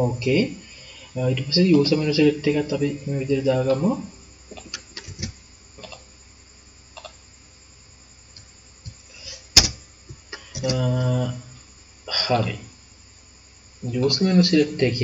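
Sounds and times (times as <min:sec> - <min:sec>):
computer mouse and keyboard clicks: 0:04.6 - 0:05.4.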